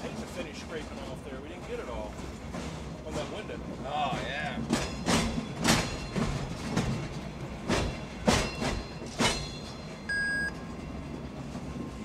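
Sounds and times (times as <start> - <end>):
train wheels clacking over rail joints: 0.0 - 12.0
short electronic beep: 10.1 - 10.5.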